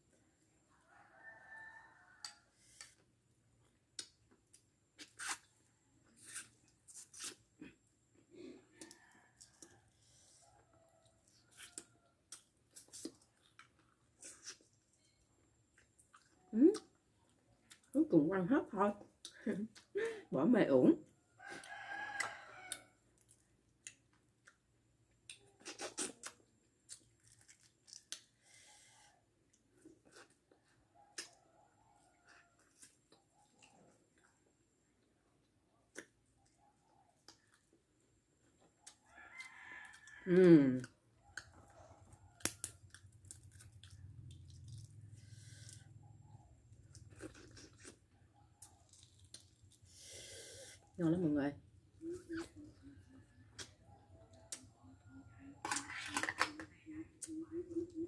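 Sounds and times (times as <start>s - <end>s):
soft eating sounds: 0.0s - 18.1s, 18.7s - 20.3s, 21.0s - 58.0s
egg shell cracking and peeling: 42.4s - 43.8s, 55.6s - 56.7s.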